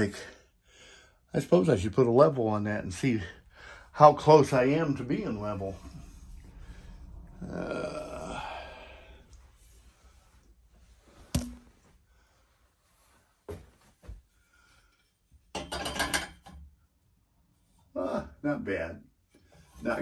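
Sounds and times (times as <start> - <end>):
breathy exhale: 3.3 - 4.0, 5.6 - 10.5
rattle of taps and knocks: 15.5 - 16.7.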